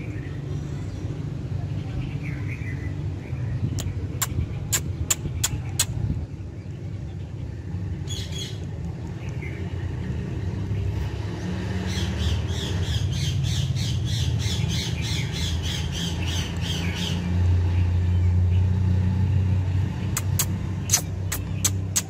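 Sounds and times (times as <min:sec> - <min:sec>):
parakeet squawking: 0:20.2 - 0:22.0.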